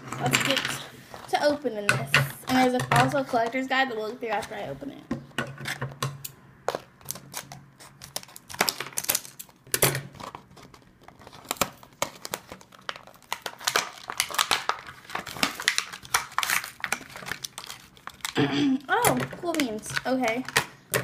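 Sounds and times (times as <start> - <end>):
scissors cutting plastic: 5.6 - 21.0
plastic packaging crinkling: 6.7 - 21.0.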